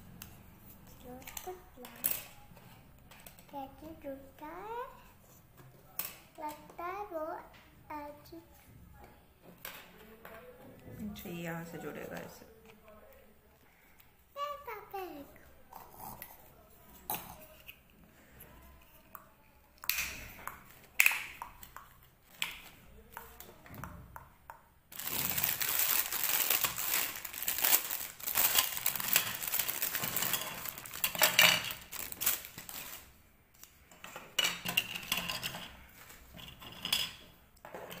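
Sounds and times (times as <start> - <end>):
plastic bags crinkling: 24.9 - 33.2.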